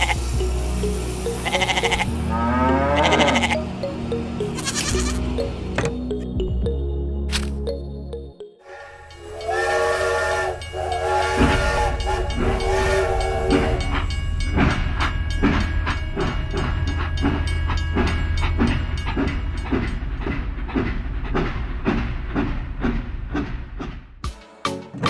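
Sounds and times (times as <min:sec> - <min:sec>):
steam train chuffing: 0:00.0 - 0:02.2, 0:08.7 - 0:24.2
toy train whistle: 0:08.7 - 0:14.0.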